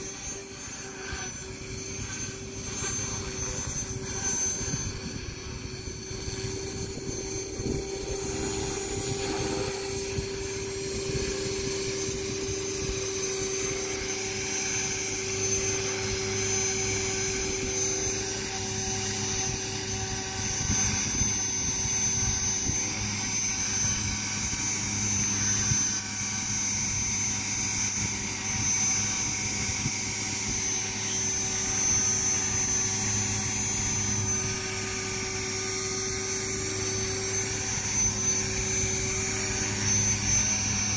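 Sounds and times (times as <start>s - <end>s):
model helicopter motor whine: 0.0s - 40.9s.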